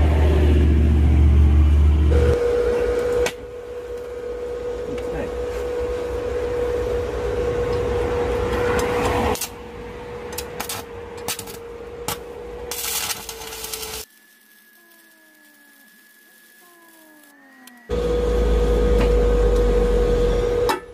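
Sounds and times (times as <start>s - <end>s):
welding arc crackling: 9.4s - 9.6s, 10.4s - 18.9s
steady machine hum: 15.7s - 20.9s.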